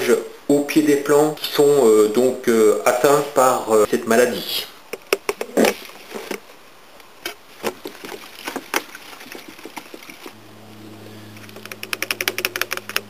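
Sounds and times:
steady low hum: 0:10.3 - 0:13.0.

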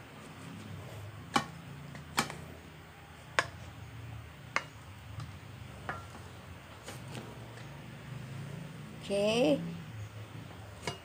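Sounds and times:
rice paddle knocking on pot: 0:03.3 - 0:03.6.

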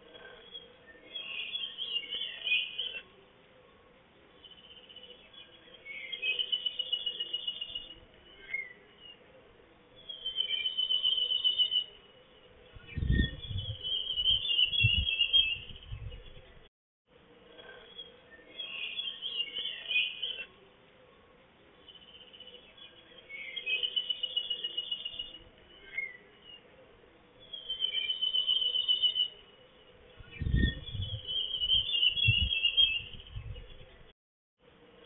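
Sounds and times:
songbird singing: 0:00.0 - 0:35.0
low rumble: 0:30.2 - 0:31.3.

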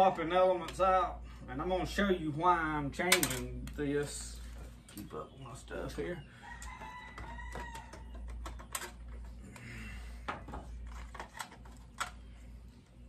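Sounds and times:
tools clicking and tapping: 0:03.0 - 0:03.8
rooster crowing: 0:06.4 - 0:08.3.

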